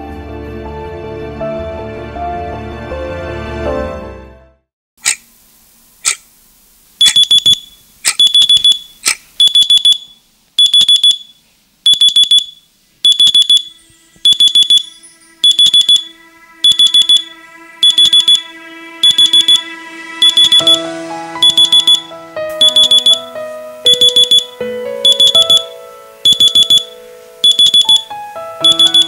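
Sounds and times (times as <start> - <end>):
electronic alarm beeping: 7.0 - 29.0
soft sustained music tones: 13.7 - 29.0.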